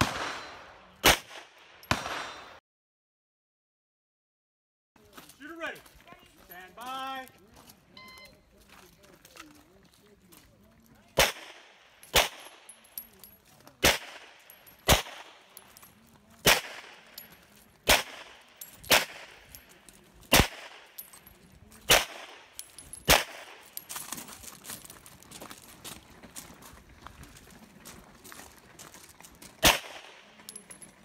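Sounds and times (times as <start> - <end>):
pistol shots with echo: 0.0 - 2.6, 11.1 - 13.1, 13.8 - 15.8, 16.4 - 21.2, 21.8 - 23.8, 29.6 - 30.7.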